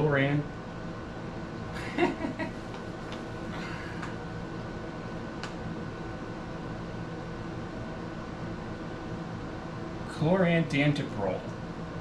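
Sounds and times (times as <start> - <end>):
steady room hum: 0.0 - 12.0.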